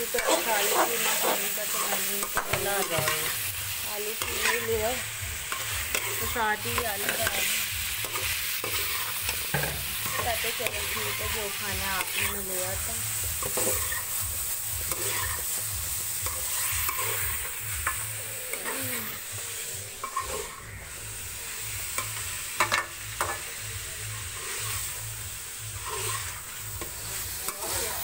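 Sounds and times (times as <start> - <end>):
food sizzling: 0.0 - 28.0
spoon scraping a metal pot: 20.0 - 20.6, 25.8 - 26.4.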